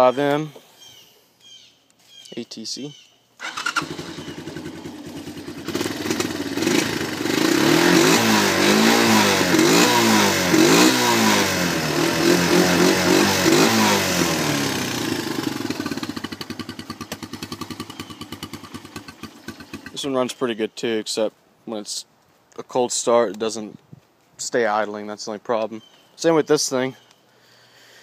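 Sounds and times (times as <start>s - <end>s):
engine idling and revving: 3.4s - 20.0s.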